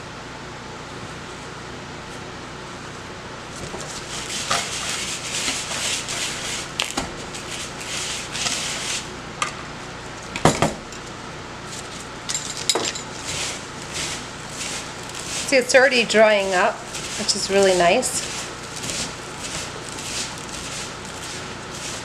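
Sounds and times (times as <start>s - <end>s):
whisk scraping salt in plastic bowl: 3.7s - 9.1s, 13.1s - 22.0s.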